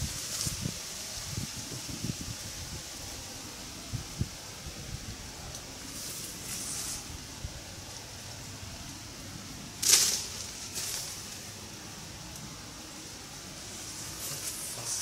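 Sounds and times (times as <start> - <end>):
outdoor background: 0.0 - 15.0
swish through reeds: 5.8 - 7.1, 9.8 - 11.6.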